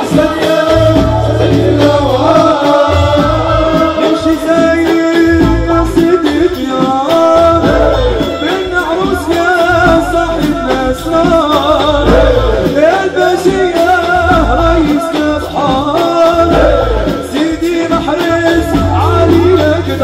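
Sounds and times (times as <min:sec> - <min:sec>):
men's chorus chanting: 0:00.0 - 0:05.0, 0:11.3 - 0:19.5
frame drums beating: 0:00.0 - 0:20.0.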